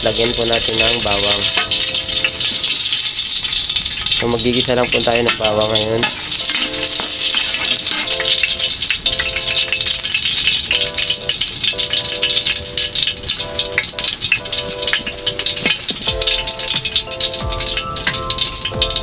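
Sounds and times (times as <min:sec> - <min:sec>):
garlic sizzling in hot oil: 0:00.0 - 0:19.0
background music with held chords: 0:13.3 - 0:19.0.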